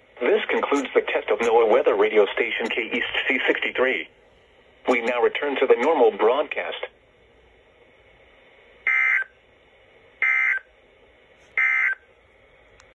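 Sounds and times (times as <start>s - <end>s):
short data bursts from radio speaker: 10.2s - 10.6s, 11.6s - 12.0s.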